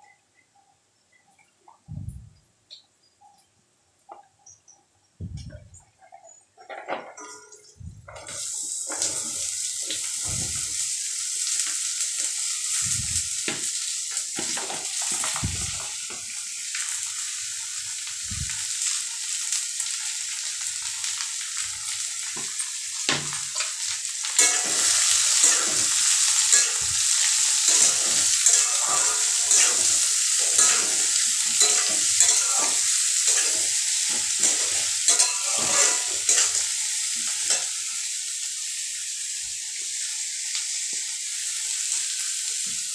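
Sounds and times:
vegetables sizzling in a pan: 7.5 - 42.9
metal spatula scraping a pan: 23.6 - 37.8.

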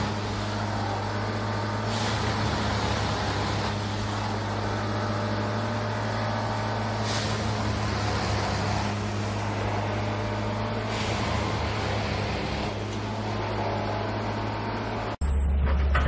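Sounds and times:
machine engine droning: 0.0 - 16.0.

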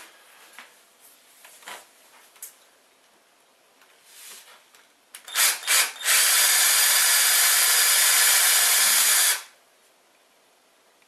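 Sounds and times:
cordless drill drilling: 5.2 - 9.6.

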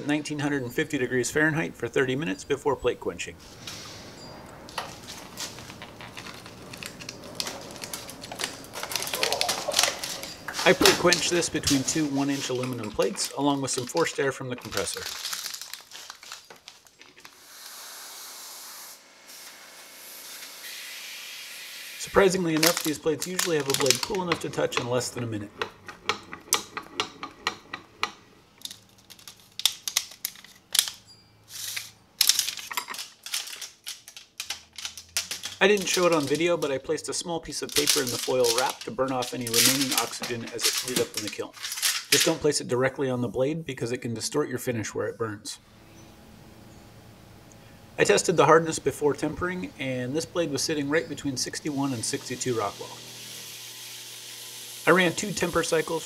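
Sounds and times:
metal tongs clicking and scraping: 22.6 - 31.0, 31.6 - 36.8.

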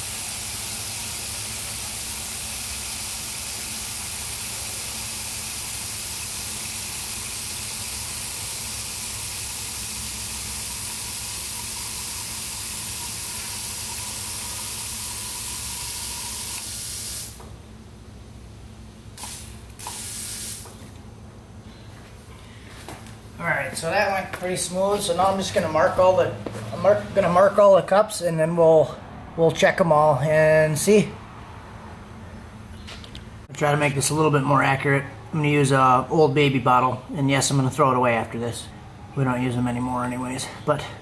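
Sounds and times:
fuel injectors spraying hiss: 0.0 - 17.5, 19.2 - 20.9
electric fuel pump hum: 0.0 - 21.3.

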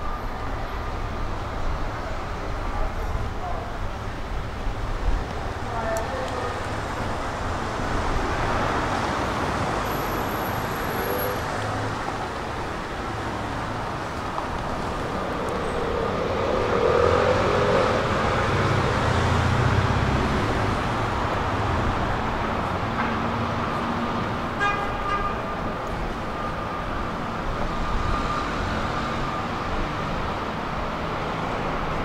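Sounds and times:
road traffic noise: 0.0 - 32.0
vehicle passing close: 13.4 - 22.3.

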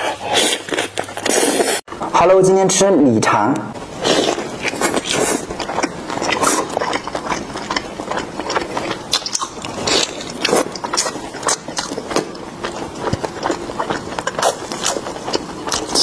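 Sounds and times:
wet chewing and mouth clicks: 3.9 - 16.0.

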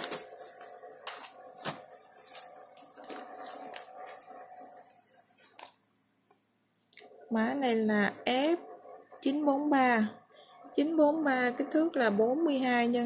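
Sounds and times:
plastic sleeves crinkling: 0.0 - 5.8
faint steady hum: 0.0 - 13.0.

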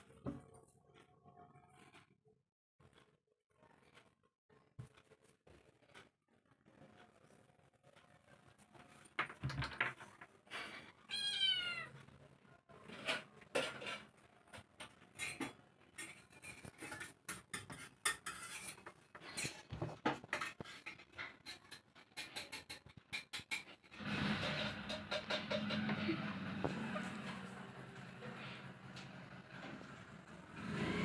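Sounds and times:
kitten meowing: 11.1 - 11.9.

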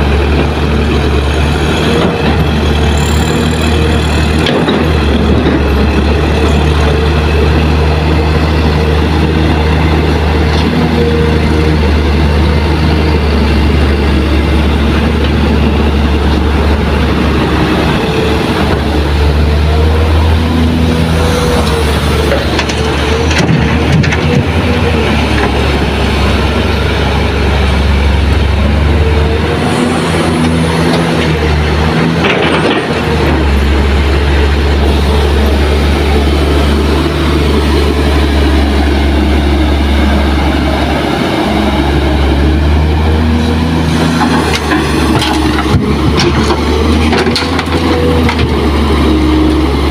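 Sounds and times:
diesel engines droning: 0.0 - 49.9.

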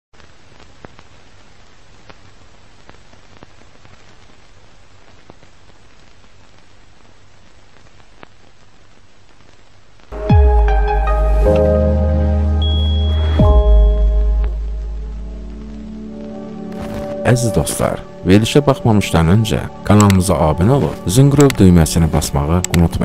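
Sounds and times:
static hiss with crackles: 0.1 - 23.0
musical hit with sliding bass: 10.2 - 16.2.

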